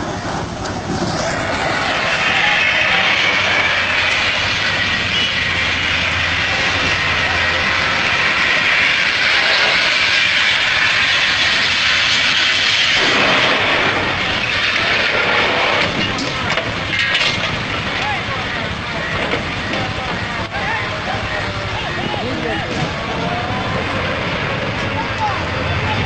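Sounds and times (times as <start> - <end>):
low engine hum: 0.0 - 26.0
loud even hiss: 0.8 - 17.8.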